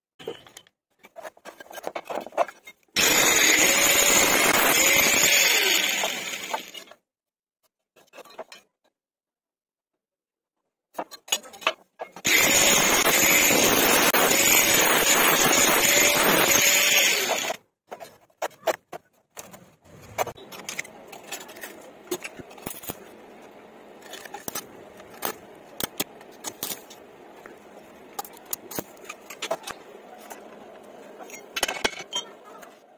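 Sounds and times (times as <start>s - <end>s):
angle grinder cutting metal: 3.0s - 6.9s, 12.3s - 17.6s.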